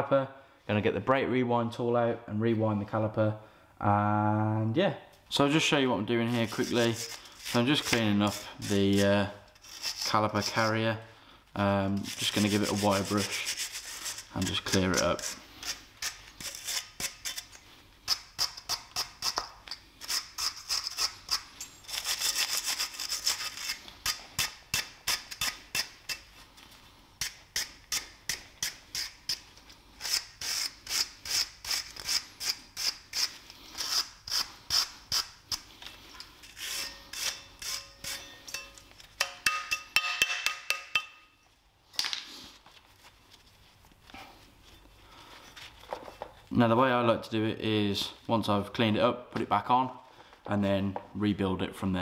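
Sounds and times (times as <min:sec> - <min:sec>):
wire brush scrubbing metal: 0:12.0 - 0:17.4, 0:36.4 - 0:39.6.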